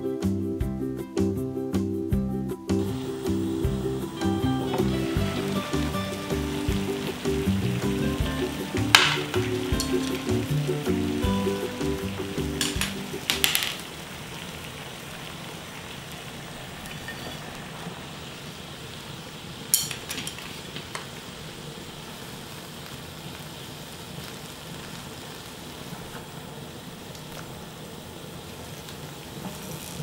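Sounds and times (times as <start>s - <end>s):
water boiling in a pan: 2.8s - 30.0s
utensil clinking against pan: 12.6s - 13.8s, 17.1s - 17.5s, 19.8s - 20.5s.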